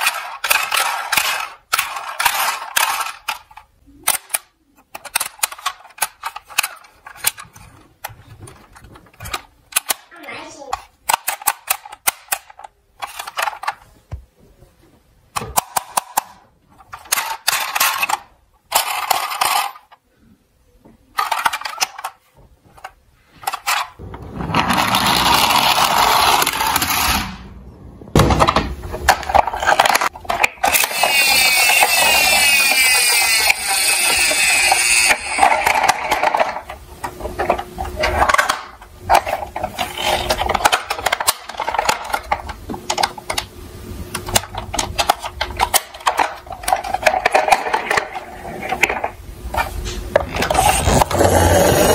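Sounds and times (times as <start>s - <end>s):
toy vehicles rolling rattle: 0.0s - 9.9s, 16.8s - 20.0s, 21.2s - 22.2s, 22.8s - 27.3s, 29.1s - 43.4s, 44.3s - 51.9s
plastic toy handling clicks: 0.0s - 10.1s, 10.7s - 13.8s, 21.1s - 22.2s, 44.1s - 48.2s.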